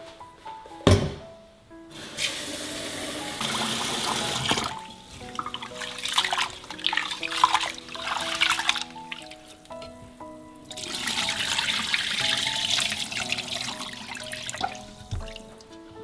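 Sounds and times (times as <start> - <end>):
tap water running into pot: 2.0 - 9.4, 10.6 - 15.4
hands washing rice in water: 3.2 - 9.8, 10.7 - 15.7.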